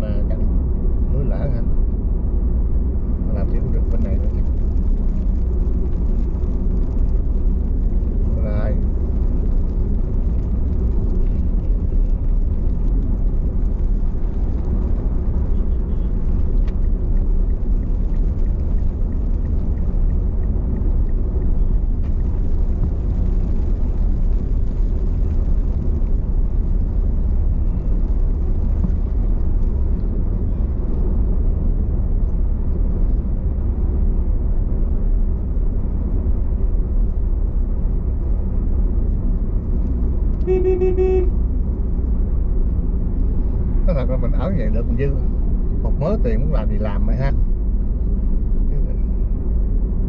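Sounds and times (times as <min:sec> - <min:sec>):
car driving rumble: 0:00.0 - 0:50.0
car horn honking: 0:40.4 - 0:41.4.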